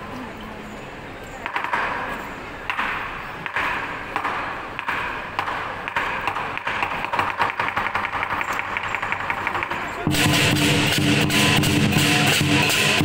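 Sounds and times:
cymbals clashing: 0:08.3 - 0:13.0.

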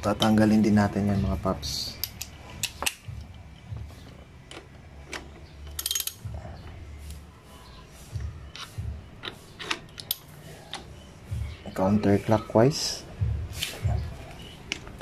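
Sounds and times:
ratchet wrench clicking: 0:02.0 - 0:03.4, 0:04.5 - 0:06.3.

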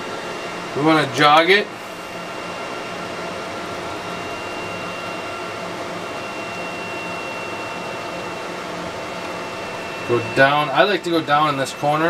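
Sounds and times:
laser engraver mechanical hum: 0:00.0 - 0:12.0
thin high whine: 0:00.0 - 0:12.0.

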